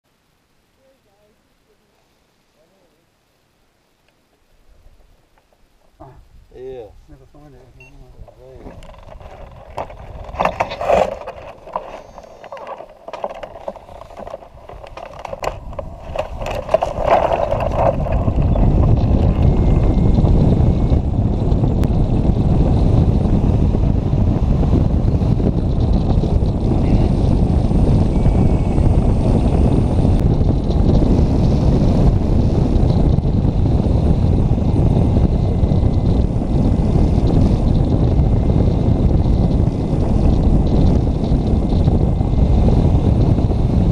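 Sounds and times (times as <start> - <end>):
wind buffeting microphone: 5.8 - 43.9.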